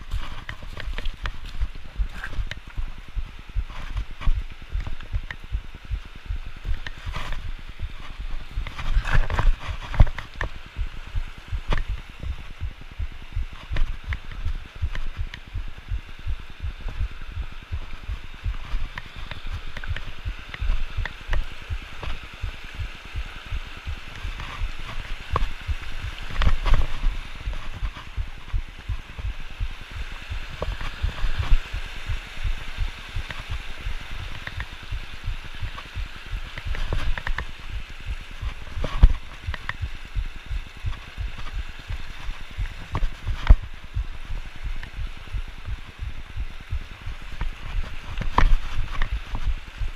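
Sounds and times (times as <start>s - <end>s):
creek rushing over rocks: 0.0s - 49.9s
wind buffeting microphone: 0.0s - 49.9s.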